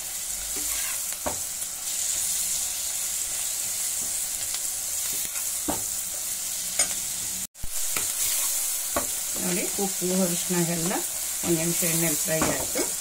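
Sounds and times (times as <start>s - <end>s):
vegetables sizzling in oil: 0.0s - 13.0s
steel spoon scraping a pan: 0.5s - 1.2s, 8.0s - 9.2s.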